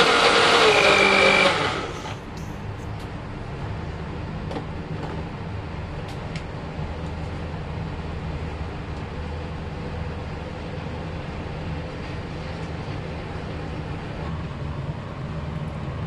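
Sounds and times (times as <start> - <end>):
blender running: 0.0 - 2.5
steady low hum: 0.6 - 3.5.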